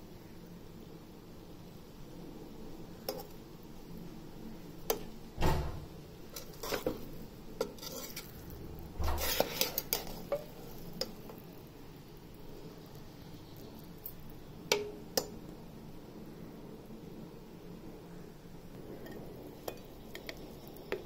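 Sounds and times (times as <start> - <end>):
metal spoon scraping pot: 3.1 - 3.4, 6.2 - 11.4.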